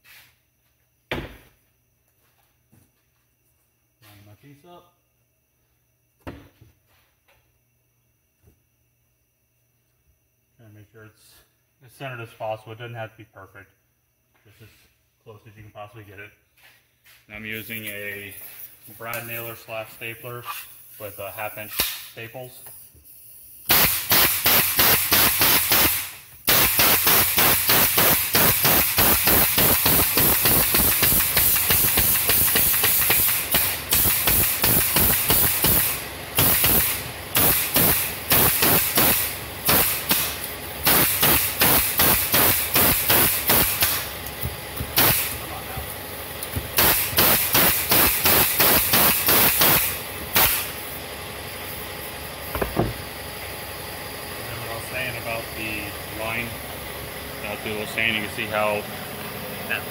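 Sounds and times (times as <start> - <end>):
pneumatic stapler shots: 21.7 - 22.1, 23.6 - 45.4, 46.4 - 50.8, 52.5 - 53.1.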